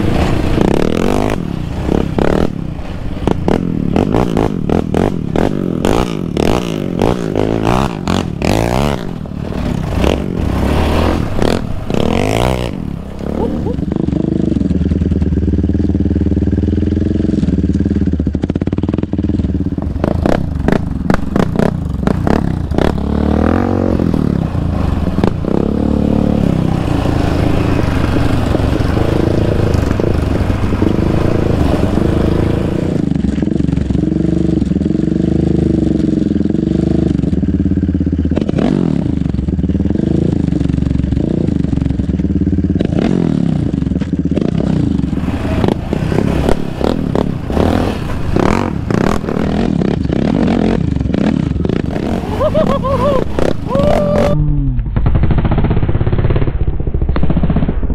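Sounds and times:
quad bike engine revving: 0.0s - 54.9s.

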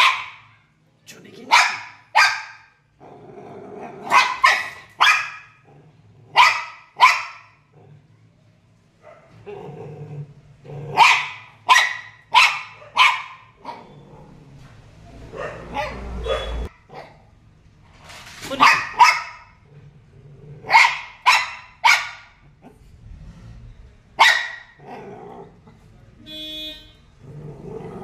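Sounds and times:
dog barking: 0.0s - 0.7s, 1.4s - 2.8s, 3.9s - 5.6s, 6.3s - 7.7s, 9.0s - 9.4s, 10.9s - 14.0s, 15.2s - 17.3s, 18.6s - 19.6s, 20.6s - 22.4s, 24.2s - 25.1s.

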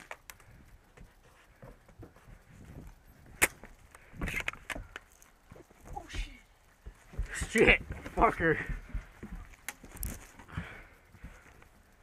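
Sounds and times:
sharp crack: 3.3s - 5.1s.

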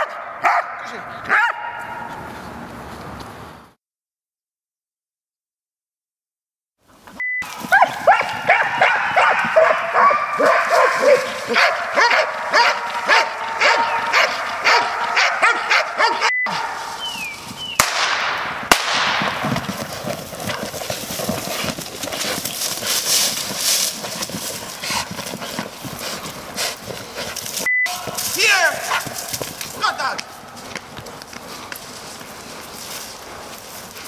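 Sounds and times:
dogs barking: 0.0s - 2.2s, 7.4s - 17.3s, 27.9s - 29.5s
dogs scuffling in dirt: 7.2s - 17.8s, 19.1s - 34.0s.

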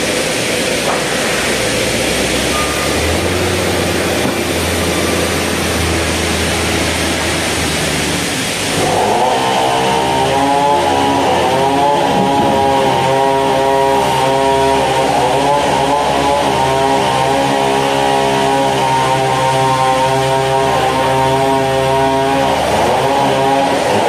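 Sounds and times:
band saw whine: 0.0s - 24.0s.

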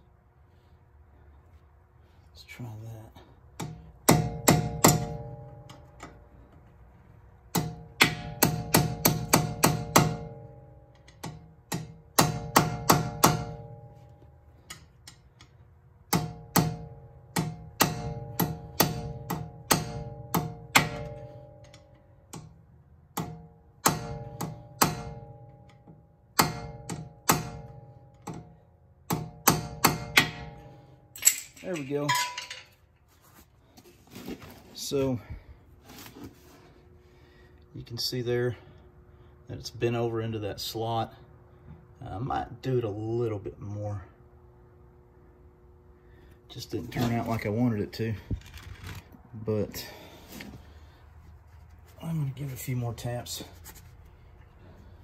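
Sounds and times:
hammer tapping metal punch: 3.6s - 6.2s, 7.5s - 14.0s, 16.1s - 32.7s.

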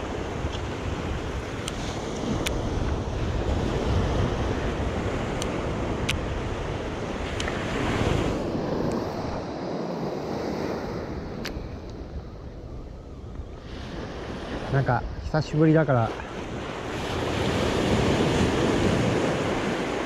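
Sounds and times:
surf washing on beach: 0.0s - 12.8s, 13.6s - 20.0s
wind buffeting microphone: 0.0s - 20.0s
faint sharp clicks: 2.4s - 2.6s, 5.4s - 6.2s, 7.4s - 7.6s, 11.4s - 12.0s.

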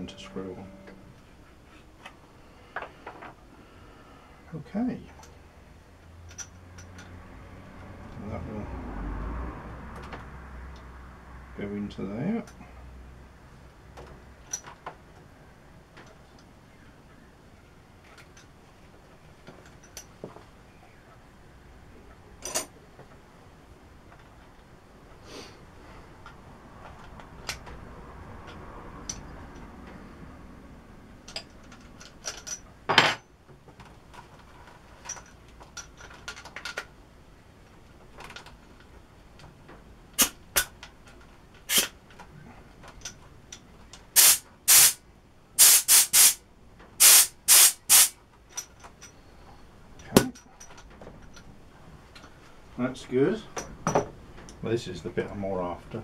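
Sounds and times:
compressed air blasts hissing: 44.2s - 45.0s, 45.6s - 46.4s, 47.0s - 48.2s.

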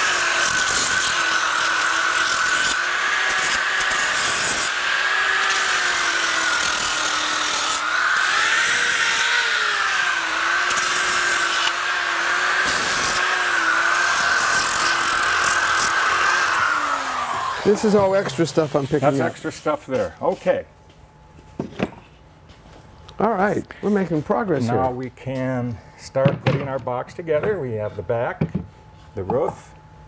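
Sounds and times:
electric sander motor: 0.0s - 19.4s.

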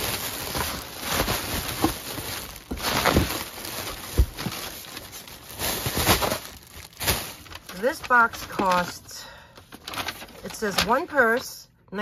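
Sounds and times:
cardboard box rustling and scraping: 0.0s - 6.5s.

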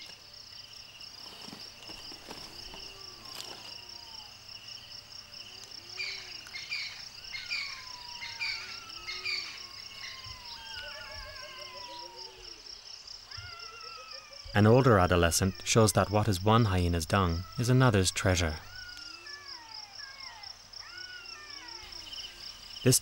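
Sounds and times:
insects chirring: 0.0s - 23.0s
bird calls: 5.5s - 23.0s.

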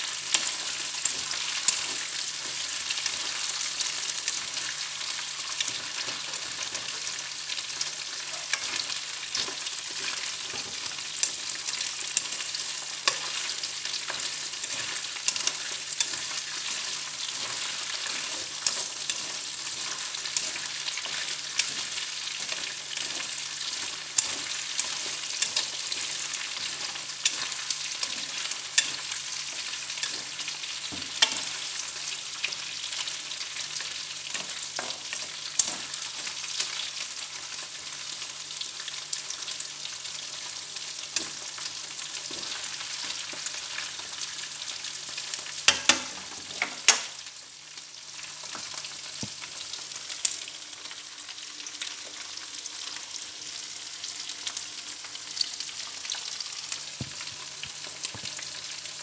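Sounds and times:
shrimp sizzling in oil: 0.0s - 59.0s
chopsticks clicking against pan: 31.1s - 31.6s, 45.7s - 47.1s.

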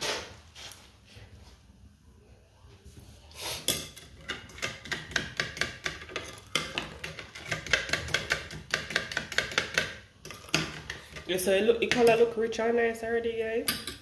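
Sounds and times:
metal spoon clinking against bowl: 13.6s - 14.0s.

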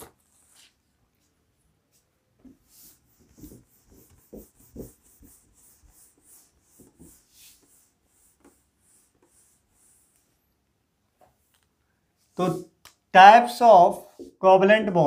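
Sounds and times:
cloth rubbing whiteboard: 1.9s - 10.5s.

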